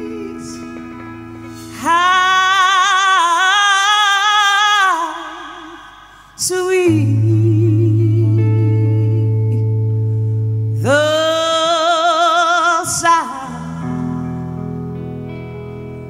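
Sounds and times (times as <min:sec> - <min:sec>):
woman singing with vibrato: 0:00.0 - 0:10.0, 0:10.6 - 0:15.0
soft held chords: 0:06.5 - 0:16.0.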